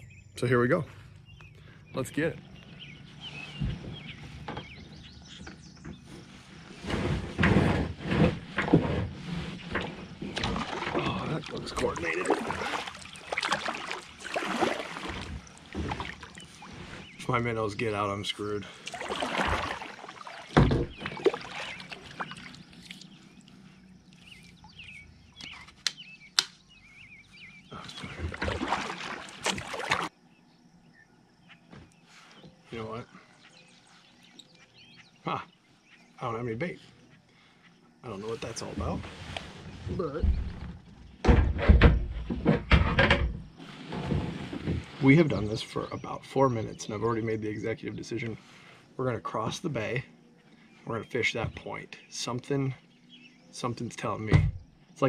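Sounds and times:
birds chirping: 0.0s - 55.0s
paddle pulling through water: 2.8s - 17.4s, 18.4s - 25.6s, 27.3s - 30.2s.

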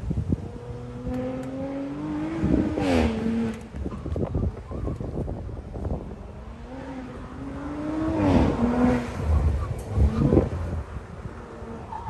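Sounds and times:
car engine revving: 0.5s - 3.8s, 6.1s - 12.0s.

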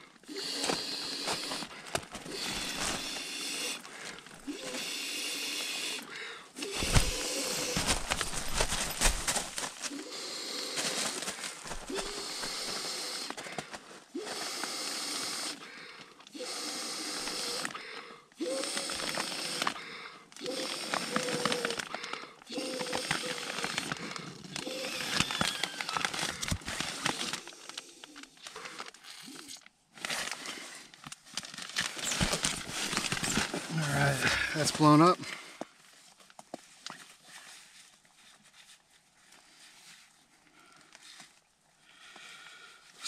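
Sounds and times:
breathy exhales into valve: 0.3s - 8.0s, 9.9s - 13.6s, 14.2s - 29.6s.

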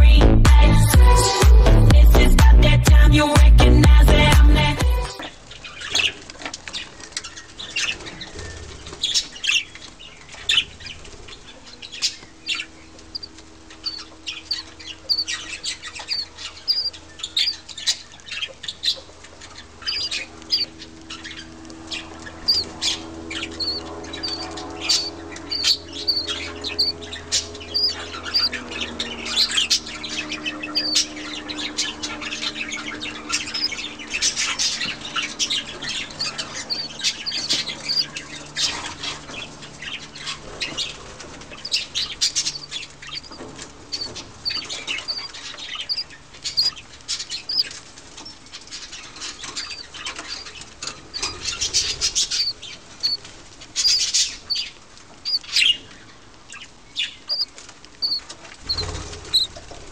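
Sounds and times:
budgie chick begging chirps: 13.1s - 18.1s, 19.8s - 20.8s, 22.0s - 31.2s, 31.9s - 39.0s, 41.5s - 48.4s, 49.4s - 55.8s, 57.0s - 59.7s.

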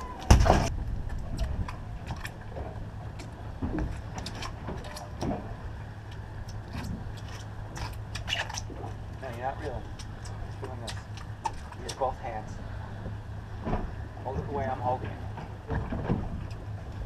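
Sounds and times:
boat engine idling: 0.0s - 17.0s
loud thump: 0.3s - 0.7s.

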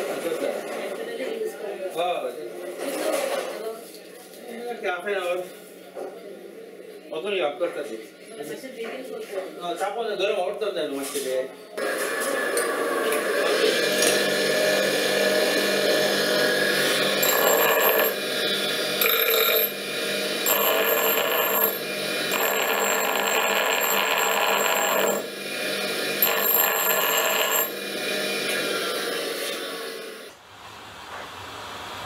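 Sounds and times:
bench grinder running: 11.8s - 30.3s
high-pitched ringing grinding: 12.5s - 30.0s.

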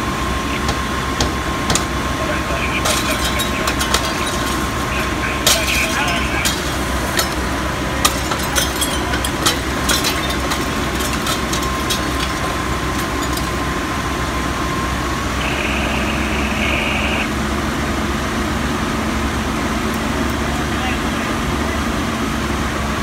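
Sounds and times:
fire engine running: 0.0s - 23.0s.

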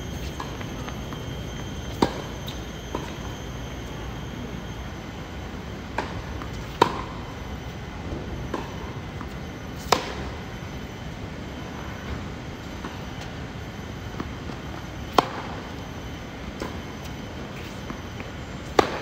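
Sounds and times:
steady background noise: 0.0s - 19.0s
racket striking tennis ball: 5.9s - 7.1s, 9.8s - 10.4s, 15.1s - 15.4s, 18.7s - 19.0s.

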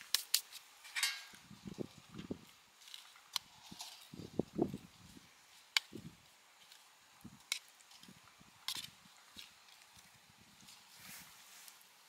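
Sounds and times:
metallic clink: 0.9s - 1.4s.

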